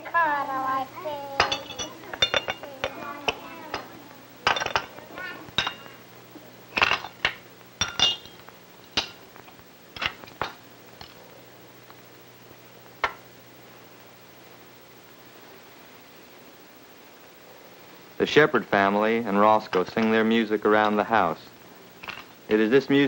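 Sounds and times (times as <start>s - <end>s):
steady low hum: 0.0s - 23.0s
dishes and cutlery clinking: 1.4s - 6.0s, 6.7s - 9.2s.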